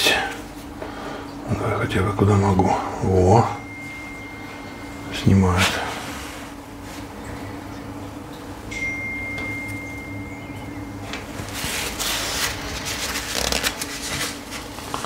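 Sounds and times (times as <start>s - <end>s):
steady low hum: 0.0s - 15.0s
thin high tone: 3.0s - 6.5s, 8.7s - 12.4s
paper napkin rustling: 11.3s - 15.0s.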